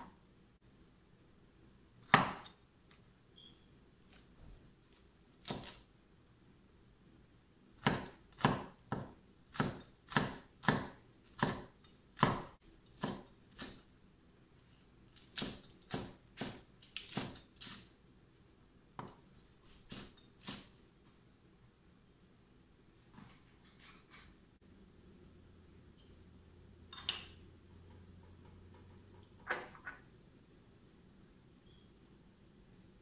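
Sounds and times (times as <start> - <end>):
knife chopping on wooden board: 2.0 - 2.5, 5.4 - 5.8, 7.8 - 13.8.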